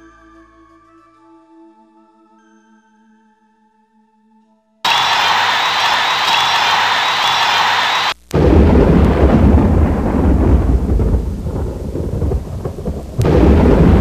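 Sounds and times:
loud deep rumble: 4.9 - 14.0.

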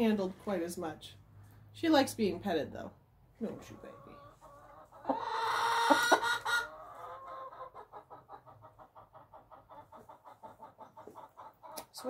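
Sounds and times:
hen clucking softly: 3.7 - 12.0.

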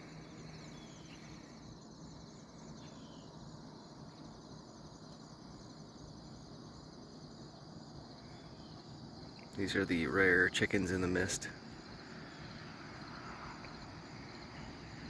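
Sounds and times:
bird chirp: 0.0 - 5.2, 8.0 - 11.3
crickets trilling: 0.0 - 15.0.

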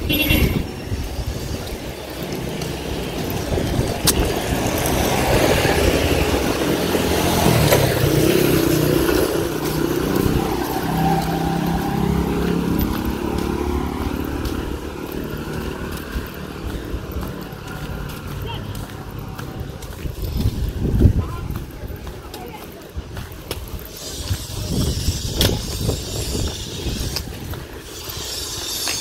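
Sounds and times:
vehicle driving past: 1.3 - 20.8.

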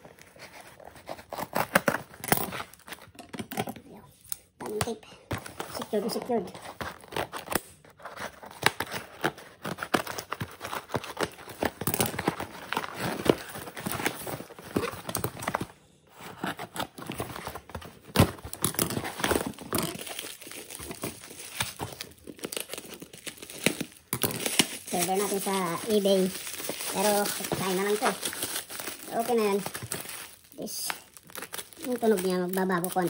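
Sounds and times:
bubble wrap crinkling: 0.0 - 3.6, 5.5 - 33.0
cardboard tearing: 0.0 - 3.6, 5.6 - 33.0
scissors cutting cardboard: 0.4 - 3.0.

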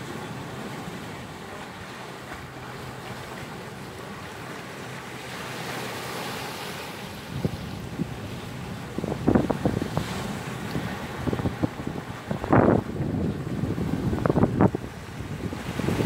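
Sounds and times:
surf rushing over rocks: 0.0 - 16.0
wind buffeting microphone: 7.2 - 16.0.

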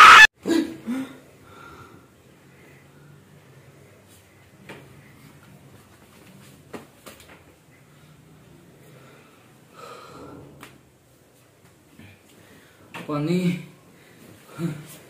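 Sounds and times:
man breathing: 0.8 - 4.5, 7.8 - 10.6, 12.0 - 12.9.

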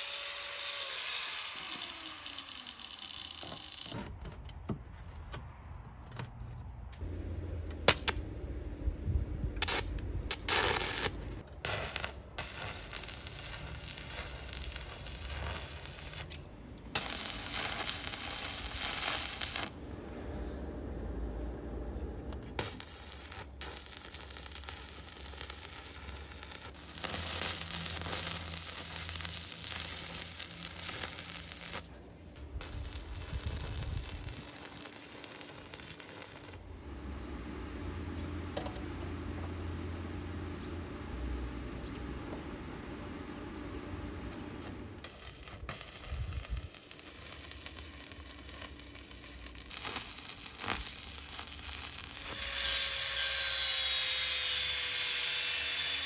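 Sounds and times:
welding arc crackling and sizzling: 0.0 - 3.9, 9.6 - 19.8, 22.4 - 36.7, 45.0 - 56.0.

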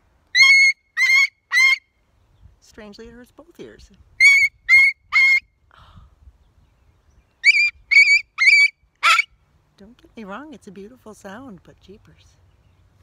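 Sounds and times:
cockatoo calling: 0.3 - 1.8, 4.2 - 5.5, 7.4 - 9.4.

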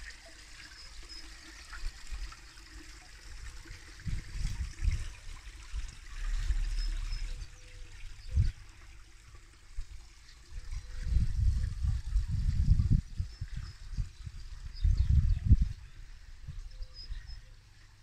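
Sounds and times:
water trickling: 0.0 - 18.0
wind buffeting microphone: 3.6 - 8.8, 9.7 - 17.4.

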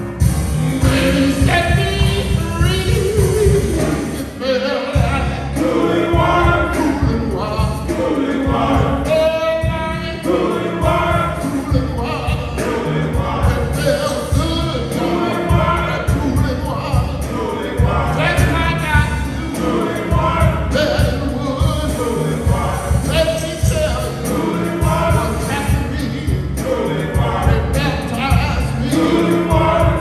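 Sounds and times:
male gospel chorus singing: 0.0 - 30.0.

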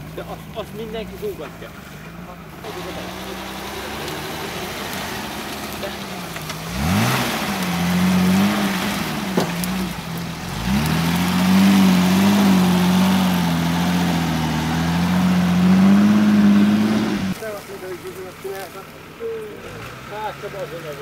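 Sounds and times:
engine revving hard: 2.6 - 17.4.

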